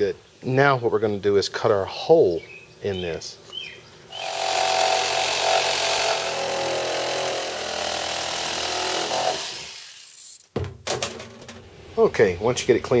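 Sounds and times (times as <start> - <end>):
electric saw cutting plastic: 4.2 - 10.5.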